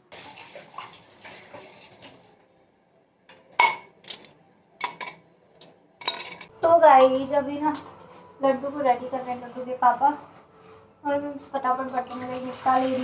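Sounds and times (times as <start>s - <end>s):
water hissing at sink: 0.0s - 2.3s
utensils and dishes clattering: 3.6s - 8.2s.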